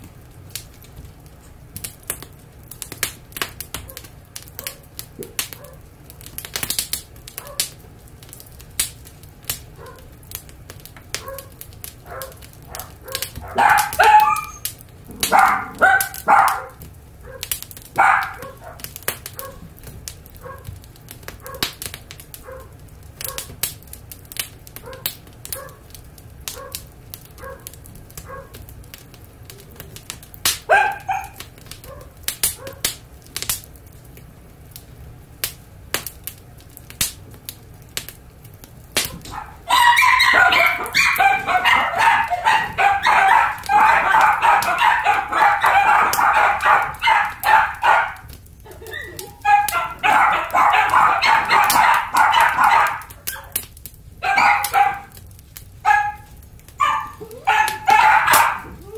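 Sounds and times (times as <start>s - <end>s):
puppies barking and yapping: 7.3s - 7.8s, 9.8s - 10.1s, 11.1s - 20.8s, 21.4s - 23.6s, 27.4s - 28.6s, 29.6s - 32.9s, 39.1s - 53.6s, 54.2s - 55.2s, 55.8s - 58.9s
puppy whining: 13.1s - 16.7s, 39.2s - 48.0s, 48.6s - 53.6s, 56.8s - 58.9s.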